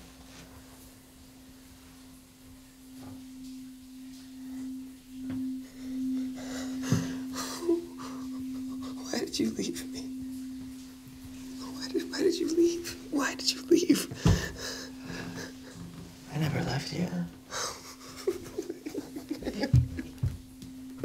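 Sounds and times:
soft breaths: 5.4s - 9.1s, 14.0s - 16.3s.

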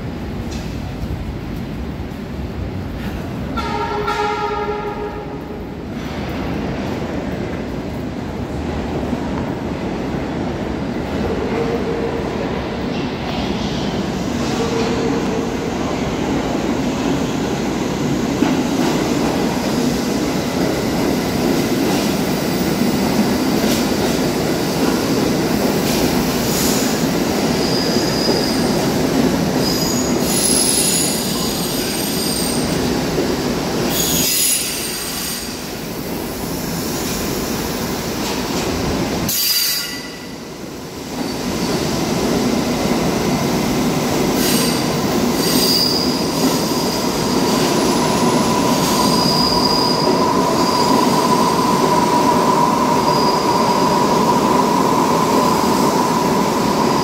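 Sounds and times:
subway train wheels rumbling: 0.0s - 57.0s
high wheel squeal: 45.4s - 46.2s, 48.7s - 51.8s.

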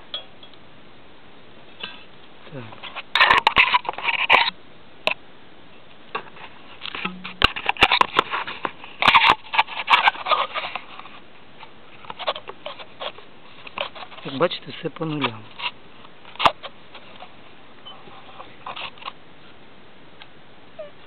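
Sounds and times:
rustling and crackling: 6.1s - 19.7s.

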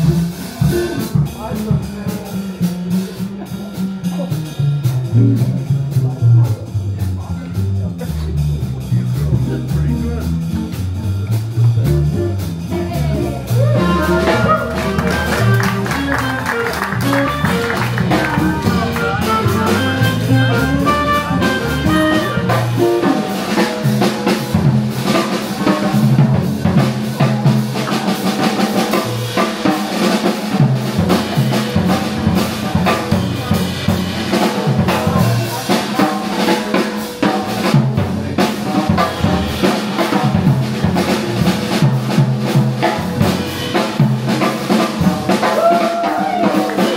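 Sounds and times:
busy drumming with rimshots: 0.0s - 46.9s
swing band playing: 0.0s - 46.9s
upright bass notes: 0.0s - 46.9s.

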